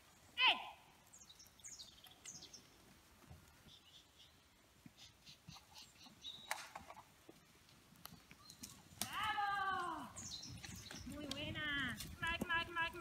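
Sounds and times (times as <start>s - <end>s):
faint bird chirps: 3.6s - 6.6s.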